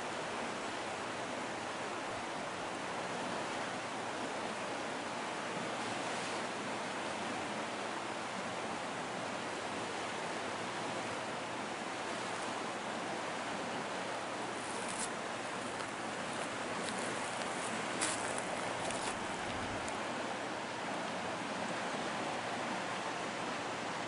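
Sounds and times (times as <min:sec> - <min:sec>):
steady rushing noise: 0:11.8 - 0:24.0.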